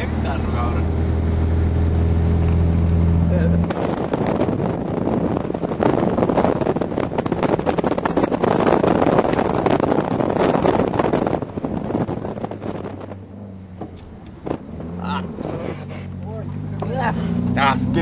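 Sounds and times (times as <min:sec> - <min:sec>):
car running noise: 0:00.0 - 0:18.0
wind buffeting microphone: 0:00.0 - 0:18.0.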